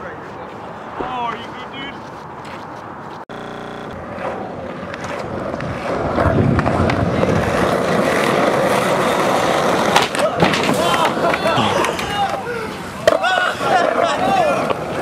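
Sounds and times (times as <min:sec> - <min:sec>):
skateboard wheels rolling on asphalt: 0:00.0 - 0:15.0
short buzzing tone: 0:03.3 - 0:04.0.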